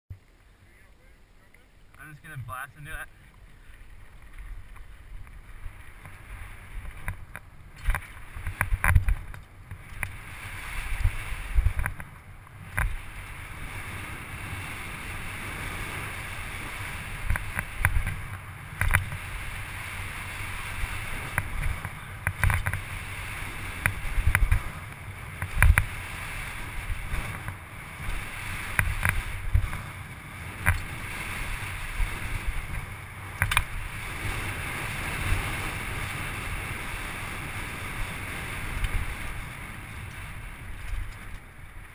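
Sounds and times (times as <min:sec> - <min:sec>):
bike tyres rolling on gravel: 0:00.1 - 0:41.9
wind rushing over microphone: 0:02.0 - 0:41.9
bike clattering on bumps: 0:03.1 - 0:10.2, 0:21.2 - 0:22.9, 0:23.8 - 0:26.0.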